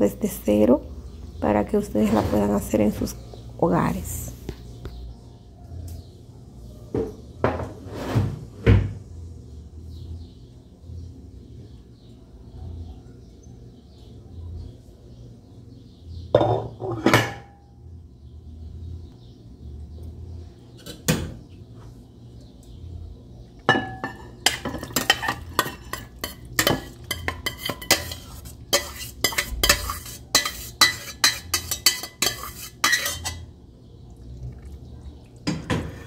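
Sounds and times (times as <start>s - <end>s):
metal spoon clanking and scraping pot: 23.7s - 33.6s.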